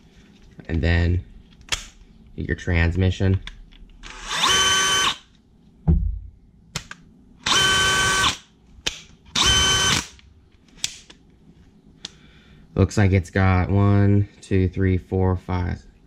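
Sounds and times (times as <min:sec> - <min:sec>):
cordless drill motor whining: 0:04.0 - 0:05.2, 0:07.4 - 0:08.4, 0:09.4 - 0:10.0
thump: 0:05.8 - 0:06.3.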